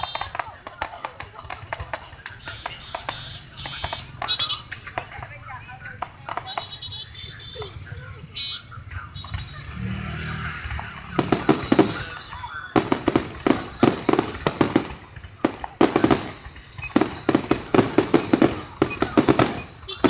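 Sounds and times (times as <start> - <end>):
fireworks bangs and crackles: 0.0 - 20.0.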